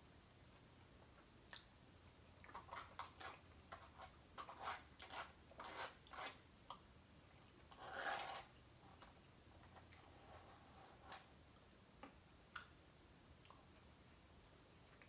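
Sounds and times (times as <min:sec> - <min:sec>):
plastic fork scraping plastic bowl: 0:02.5 - 0:06.4, 0:07.7 - 0:09.1.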